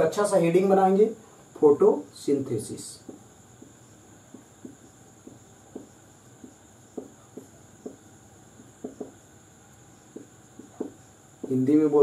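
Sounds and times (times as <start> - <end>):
pen strokes and taps on paper: 3.0 - 9.2, 10.1 - 11.8.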